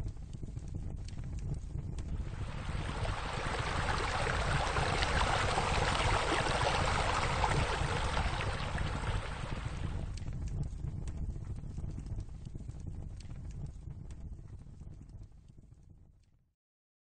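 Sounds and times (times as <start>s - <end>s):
low rumble: 0.7s - 14.2s
rushing splashing water: 2.2s - 10.1s.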